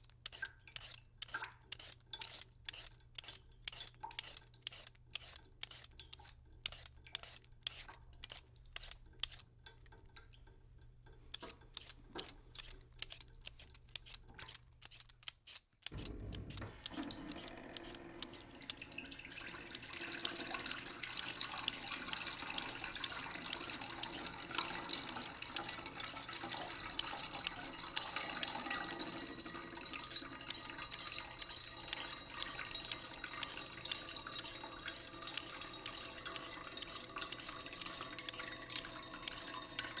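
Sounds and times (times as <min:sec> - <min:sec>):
tap water running into sink: 0:15.9 - 0:40.0.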